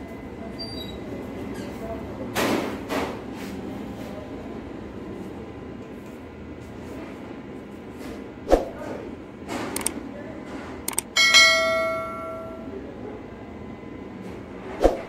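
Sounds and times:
quick double click: 9.8 - 10.0, 10.9 - 11.1
notification bell ringing: 11.2 - 12.7.

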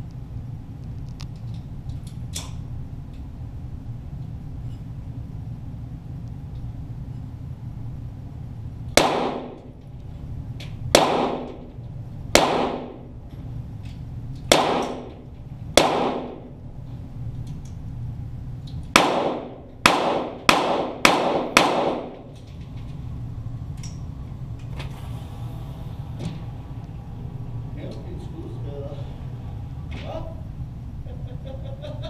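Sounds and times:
pistol shots echoing: 9.0 - 9.8, 10.9 - 11.7, 12.3 - 13.1, 14.5 - 15.2, 15.8 - 16.6, 18.9 - 22.3.

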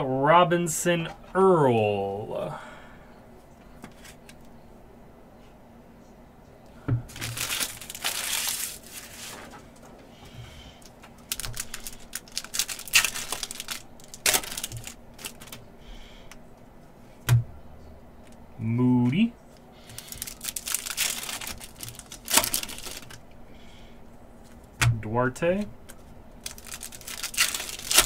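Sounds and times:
foil wrapper tearing and crinkling: 7.1 - 9.5, 11.2 - 15.6, 19.9 - 23.2, 26.4 - 28.0.

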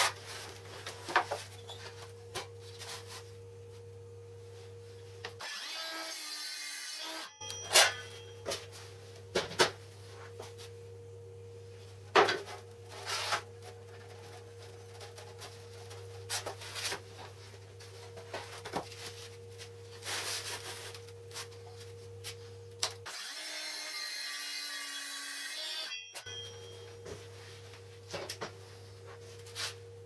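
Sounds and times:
circular saw whining: 23.1 - 26.9.

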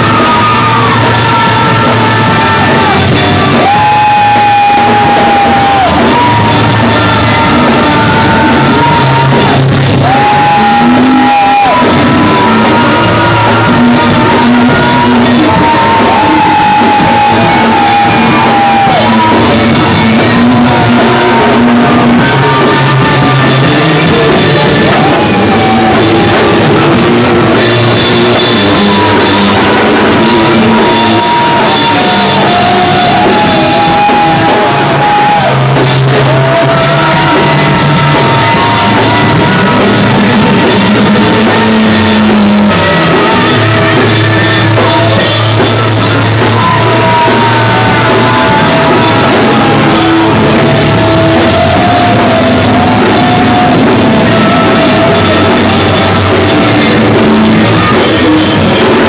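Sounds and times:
punk rock band playing loud: 0.0 - 59.0
shouted vocals: 0.0 - 59.0.

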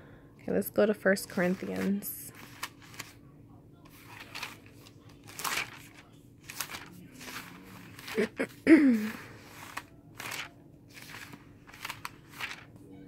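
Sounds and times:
paper pages rustling: 1.4 - 3.2, 3.9 - 12.7
woman murmuring: 8.1 - 9.4.

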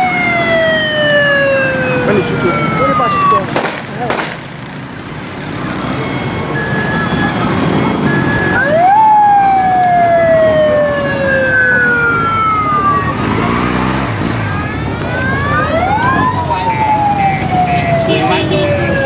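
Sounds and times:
motorcycle siren wailing: 0.0 - 19.0
walking crowd noise: 0.0 - 19.0.

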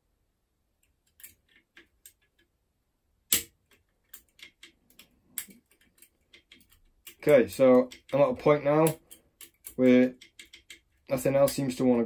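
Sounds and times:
lock pick clicking in lock: 8.8 - 10.8.

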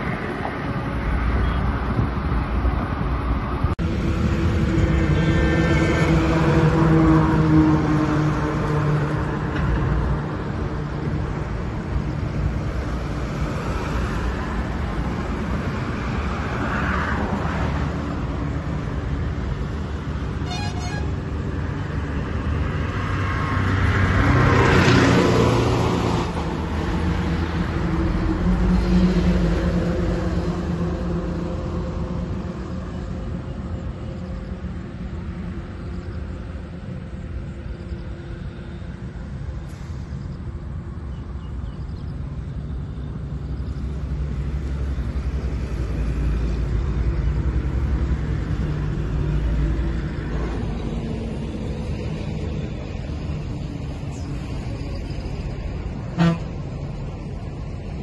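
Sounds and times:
vehicle passing by: 0.0 - 41.6
low rumble of traffic: 0.0 - 58.0.

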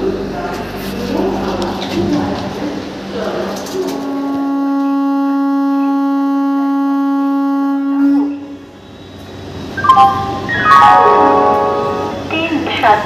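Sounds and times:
train horn: 3.8 - 9.2, 11.0 - 12.3
short musical tones: 9.8 - 12.3.

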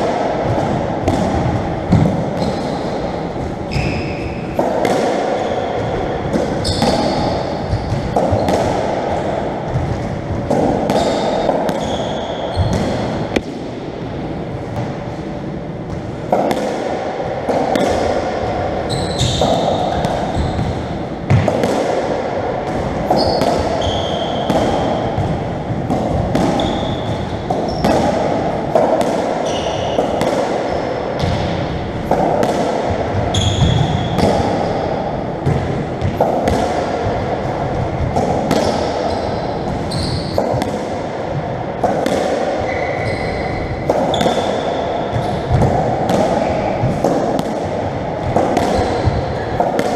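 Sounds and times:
shoes squeaking on wooden floor: 39.9 - 40.4.

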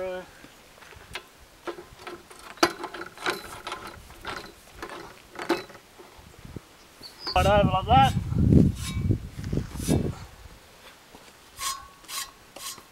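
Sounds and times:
winch gearing clicks and clanks: 1.6 - 5.9.

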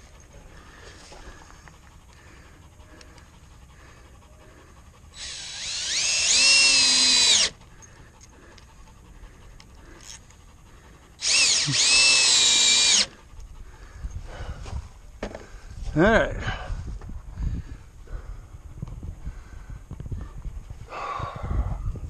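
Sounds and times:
cordless drill whining: 5.2 - 7.9, 11.2 - 13.2.

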